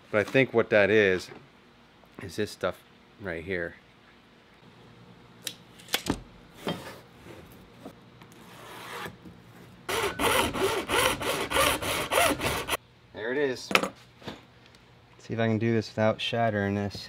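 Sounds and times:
hand saw cutting plastic: 0:09.9 - 0:12.8.

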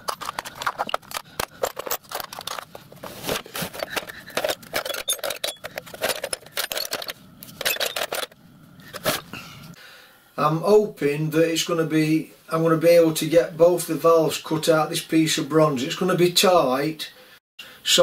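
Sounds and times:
metal pieces clinking in drawer: 0:00.0 - 0:02.8, 0:03.8 - 0:08.4.

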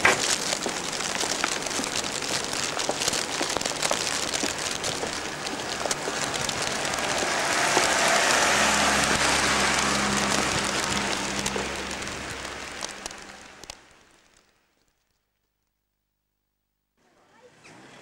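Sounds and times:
car passing on wet road: 0:00.0 - 0:14.4
steady rain: 0:00.0 - 0:15.2.

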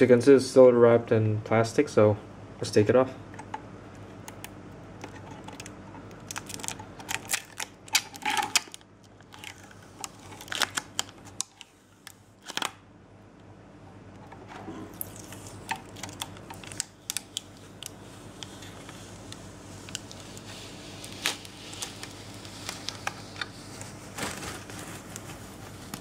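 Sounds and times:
plastic film peeling crackle: 0:04.2 - 0:12.8, 0:14.9 - 0:26.0.

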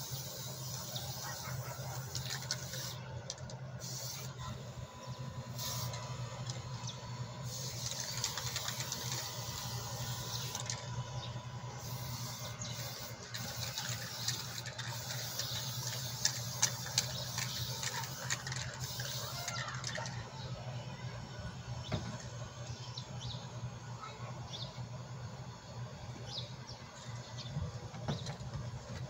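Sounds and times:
aerosol spray can hissing: 0:00.0 - 0:03.0, 0:03.8 - 0:04.3, 0:05.6 - 0:06.0, 0:07.4 - 0:10.8, 0:11.8 - 0:19.8
steady low hum: 0:00.0 - 0:29.0.

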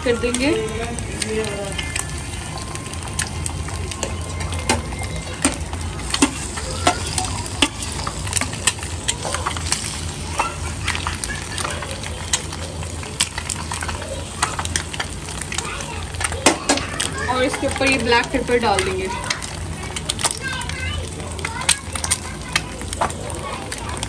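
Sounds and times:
egg whites sizzling on griddle: 0:00.0 - 0:24.0.

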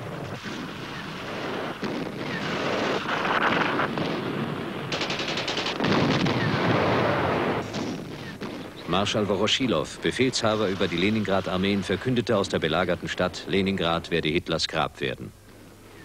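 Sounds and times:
machine-gun fire: 0:00.1 - 0:08.7.

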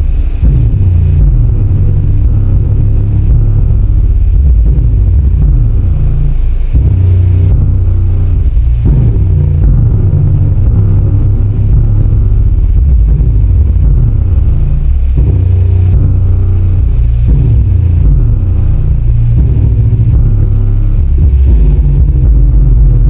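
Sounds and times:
bass-heavy music through subwoofer: 0:00.0 - 0:23.0.

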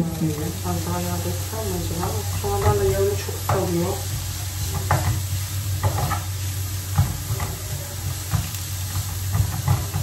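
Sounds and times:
cabbage sizzling in a frying pan: 0:00.0 - 0:10.0
wooden spatula scraping a pan: 0:02.0 - 0:10.0.

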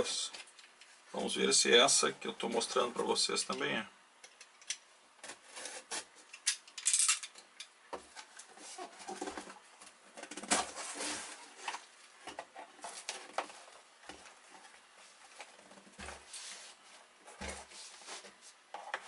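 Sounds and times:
cardboard scraping: 0:05.3 - 0:06.2, 0:10.3 - 0:11.8
cardboard knocking and rustling: 0:17.3 - 0:19.0.

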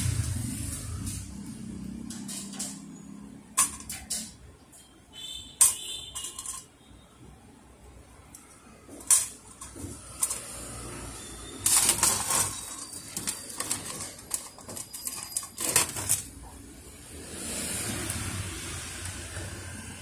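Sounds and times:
plastic parts rustling and scraping: 0:05.6 - 0:06.8, 0:08.9 - 0:16.6.

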